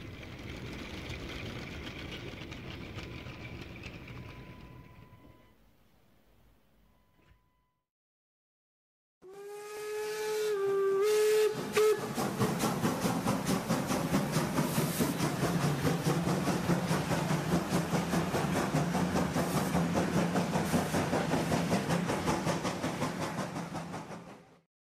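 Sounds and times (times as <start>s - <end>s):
steam locomotive chuffing: 0.0s - 5.4s, 9.3s - 24.7s
steam whistle: 9.2s - 12.4s
hiss of steam: 9.8s - 24.3s.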